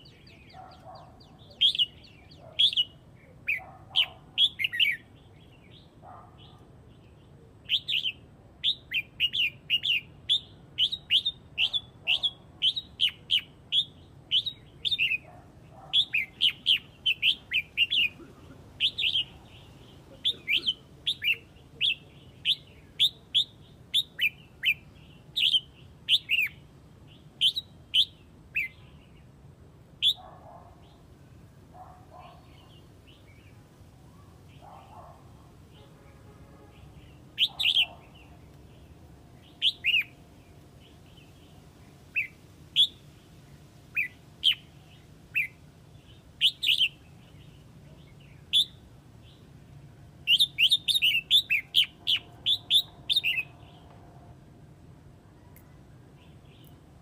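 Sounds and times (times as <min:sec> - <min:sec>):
bird calling: 0:00.0 - 0:05.1, 0:07.7 - 0:24.8, 0:37.0 - 0:38.5, 0:39.4 - 0:40.2, 0:50.3 - 0:53.8
bird trill: 0:36.8 - 0:38.4, 0:39.4 - 0:40.2, 0:46.4 - 0:47.0, 0:50.2 - 0:53.8.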